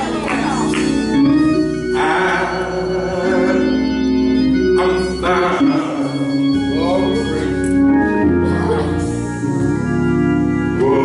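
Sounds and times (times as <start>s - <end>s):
organ playing held chords: 0.0s - 11.0s
man singing gospel: 1.0s - 7.6s, 10.7s - 11.0s.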